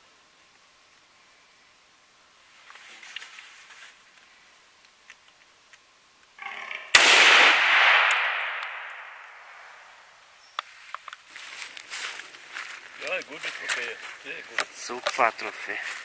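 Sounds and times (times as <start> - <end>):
rifle shot with echo: 6.9 - 9.9.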